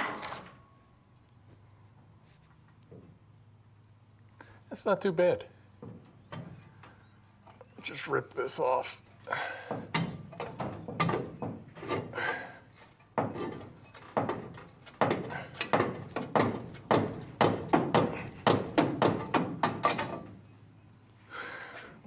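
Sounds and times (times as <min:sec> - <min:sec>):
sheet metal clanking and rattling: 0:09.6 - 0:12.4.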